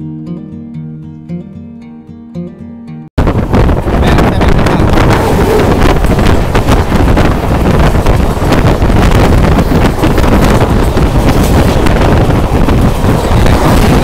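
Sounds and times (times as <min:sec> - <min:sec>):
low rumble: 0:03.2 - 0:14.0
wind rushing over microphone: 0:03.2 - 0:14.0.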